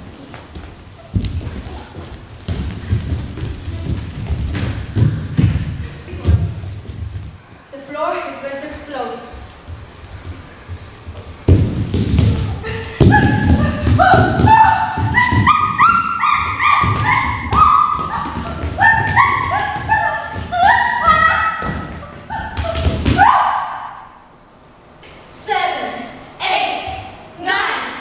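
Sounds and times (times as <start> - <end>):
thuds of bodies and feet on floor: 0.0 - 7.4, 9.4 - 23.3.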